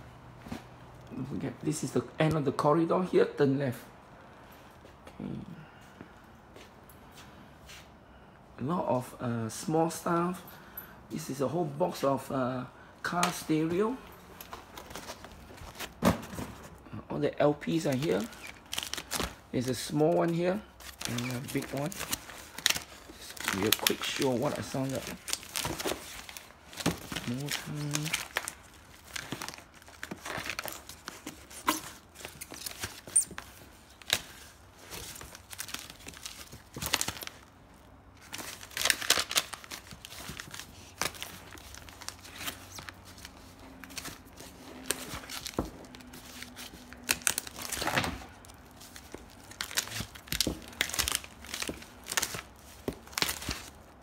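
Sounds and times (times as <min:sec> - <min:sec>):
rustling of record sleeves: 0:11.2 - 0:16.8, 0:17.5 - 0:54.0.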